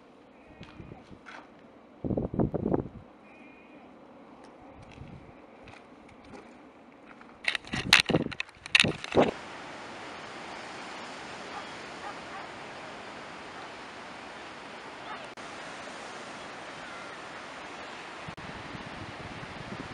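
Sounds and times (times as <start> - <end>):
sea surf over rocks: 8.7 - 19.9.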